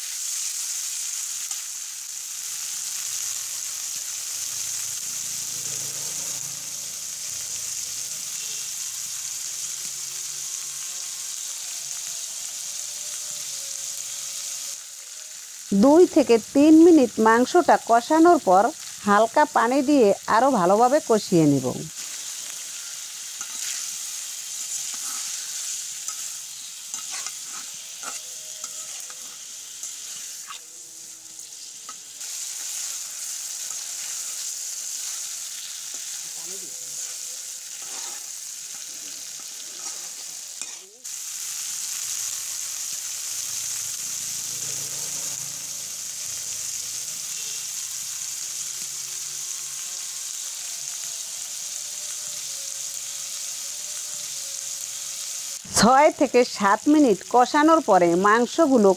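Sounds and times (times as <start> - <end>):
meat sizzling in hot oil: 0.0 - 58.9
metal spatula scraping pan: 22.0 - 30.7, 37.0 - 41.0.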